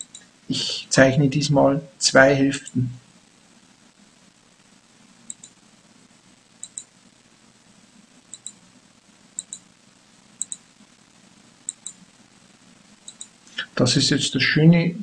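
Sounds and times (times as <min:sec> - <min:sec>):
faint low hum: 0:00.0 - 0:15.0
computer mouse button clicking: 0:09.4 - 0:09.6, 0:10.4 - 0:10.6.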